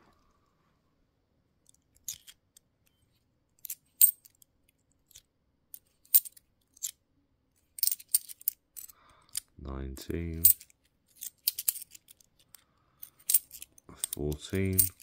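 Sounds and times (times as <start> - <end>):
coins clinking: 5.8 - 6.9, 7.7 - 9.4, 10.4 - 12.2, 13.0 - 15.0.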